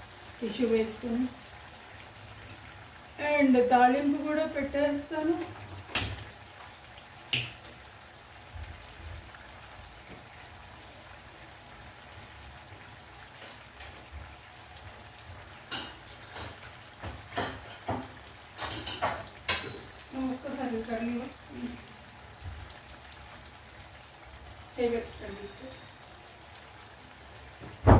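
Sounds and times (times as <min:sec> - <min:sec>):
deep-frying sizzle with pops: 0:00.0 - 0:27.9.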